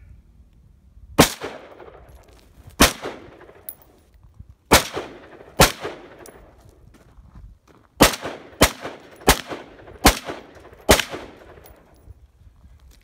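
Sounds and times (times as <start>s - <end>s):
rifle shots with echo: 1.2s - 2.1s, 2.8s - 3.8s, 4.7s - 6.6s, 8.0s - 12.0s.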